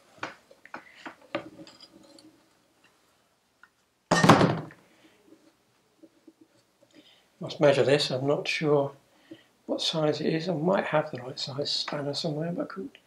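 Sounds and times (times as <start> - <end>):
light metallic clicks and scrapes: 0.9 - 3.0
loud metal thunk: 4.1 - 4.8.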